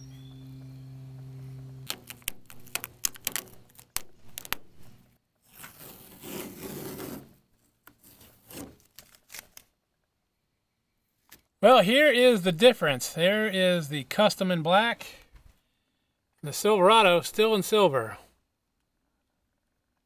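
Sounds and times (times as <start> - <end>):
steady low hum: 0.0 - 5.2
film peeling with crinkling: 1.8 - 7.2, 7.9 - 9.8
masking tape ripping off: 1.8 - 7.4, 8.0 - 9.7.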